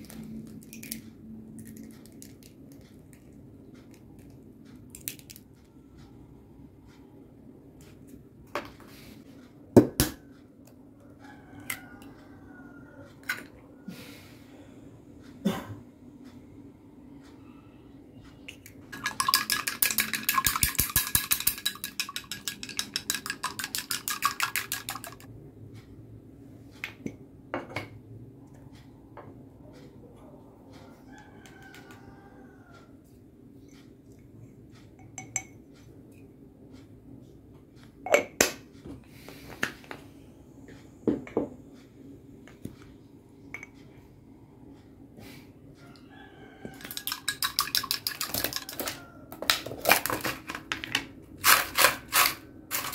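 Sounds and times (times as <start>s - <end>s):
eggs cracking taps: 18.5s - 25.3s, 46.7s - 51.0s
chopsticks clinking against glass: 19.0s - 25.3s, 46.8s - 48.9s.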